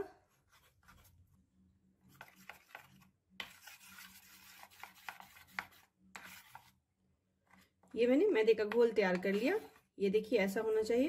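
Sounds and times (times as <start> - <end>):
spoon scraping steel bowl: 9.1 - 9.8.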